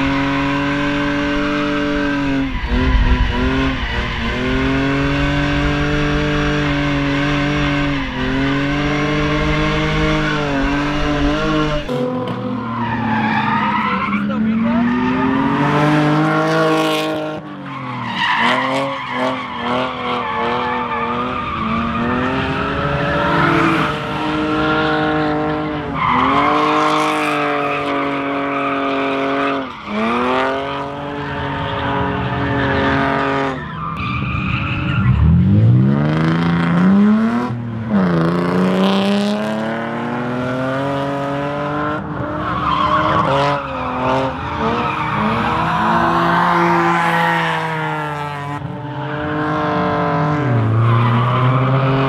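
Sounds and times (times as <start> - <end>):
tyre squeal and skidding: 0.0 - 35.7, 41.3 - 52.0
car engine revving: 0.0 - 52.0.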